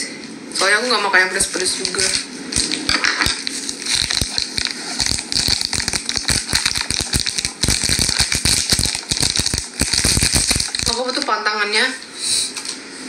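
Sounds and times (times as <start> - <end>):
crackling and popping: 1.4 - 11.3
steady hiss: 2.0 - 11.2.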